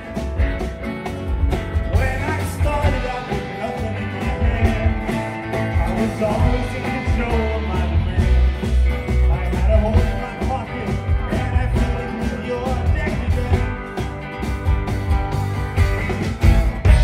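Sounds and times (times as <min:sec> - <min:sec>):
acoustic guitar strummed: 0:00.0 - 0:17.0
drum kit beat: 0:00.0 - 0:17.0
electric bass: 0:00.0 - 0:17.0
man singing: 0:01.8 - 0:14.1, 0:16.1 - 0:17.0.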